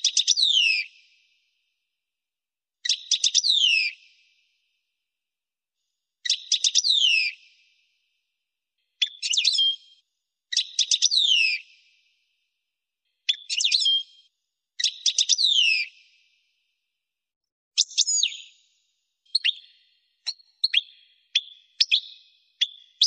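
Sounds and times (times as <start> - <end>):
finch twittering song: 6.3 - 7.3, 9.0 - 9.8, 13.2 - 14.1, 14.8 - 15.9, 17.8 - 23.0.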